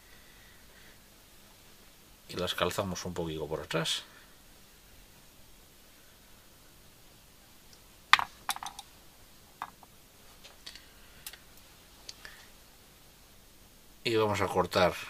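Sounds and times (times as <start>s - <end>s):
light clicks and taps of tools: 9.6s - 12.2s.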